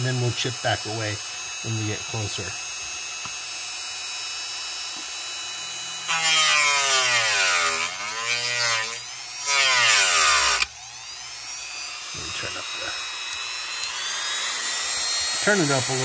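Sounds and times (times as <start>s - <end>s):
rotary tool grinding plastic: 0.0s - 16.0s.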